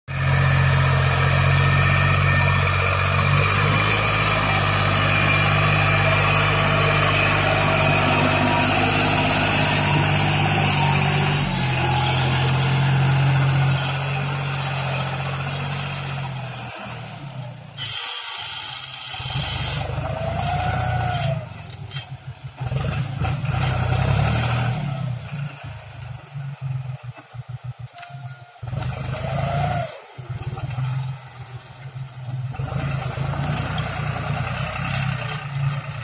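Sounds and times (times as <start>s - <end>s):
tractor diesel engine under load: 0.1s - 36.0s.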